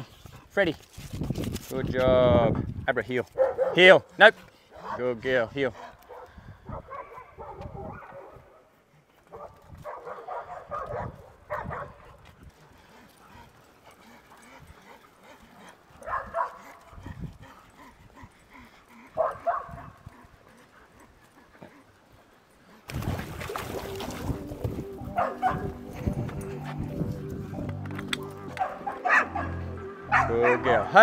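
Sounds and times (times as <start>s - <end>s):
dogs barking and yipping: 3.3s - 5.2s, 5.8s - 22.8s, 23.6s - 31.0s
water splashing: 22.9s - 24.9s.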